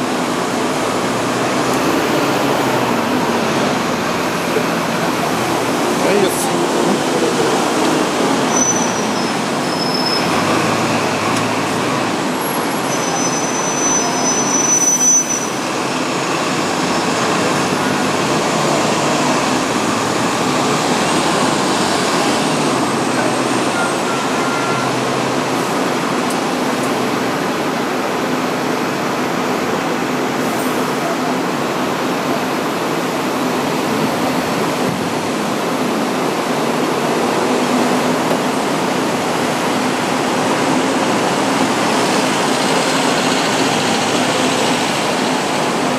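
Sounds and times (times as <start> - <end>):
tram running with street noise: 0.0 - 45.9
high tram squeals: 7.8 - 16.0, 23.6 - 25.1.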